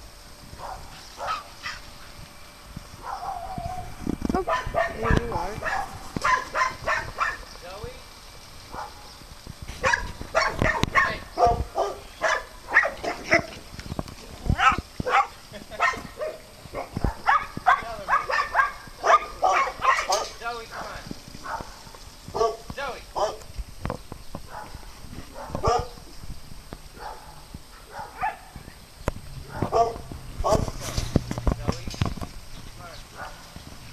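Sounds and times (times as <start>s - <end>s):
small dog barking: 0.6s - 1.8s, 3.0s - 7.4s, 8.7s - 9.1s, 9.8s - 13.5s, 14.5s - 23.5s, 24.5s - 26.0s, 27.0s - 28.6s, 29.5s - 30.8s, 33.1s - 33.5s.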